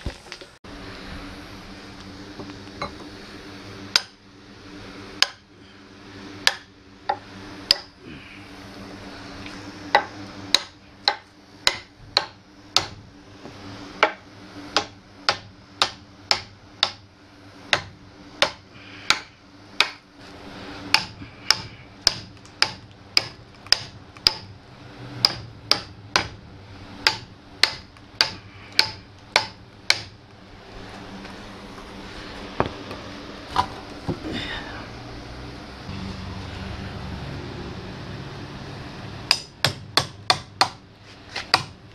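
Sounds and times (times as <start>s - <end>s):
hammer striking metal axe head: 6.4s - 7.9s, 10.0s - 13.0s, 17.7s - 20.0s, 20.9s - 24.5s, 25.2s - 26.4s, 27.0s - 30.2s, 39.3s - 40.8s.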